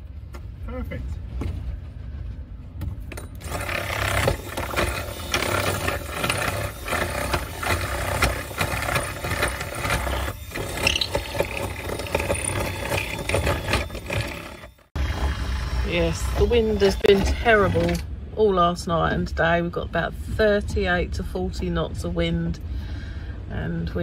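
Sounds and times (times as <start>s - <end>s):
power drill grinding wood: 3.4s - 18.0s.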